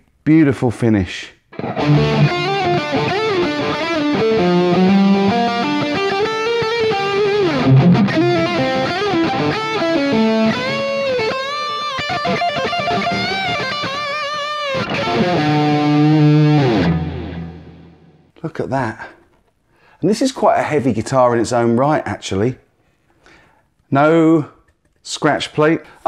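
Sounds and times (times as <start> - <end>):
electric guitar lead line: 1.5 - 18.3.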